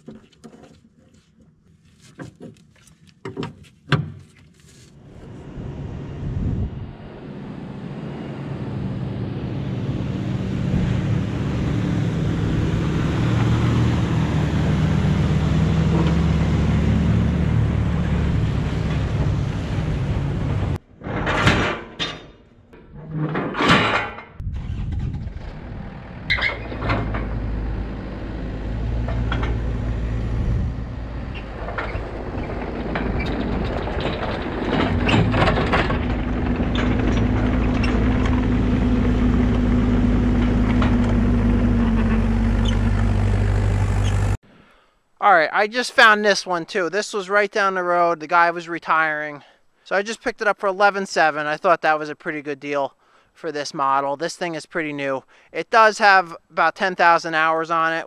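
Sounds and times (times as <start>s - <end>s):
diesel excavator engine running: 5.0s - 21.4s, 24.4s - 44.4s
scattered clicks and knocks: 31.6s - 38.4s.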